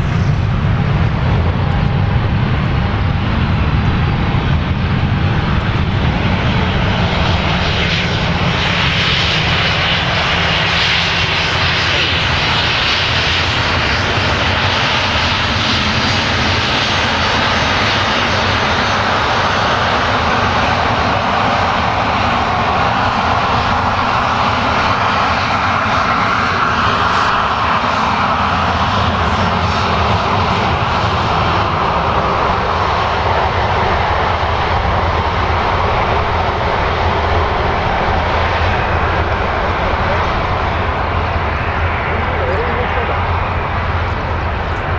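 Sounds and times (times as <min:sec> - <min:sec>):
jet engines rumbling and whining: 0:00.0 - 0:44.9.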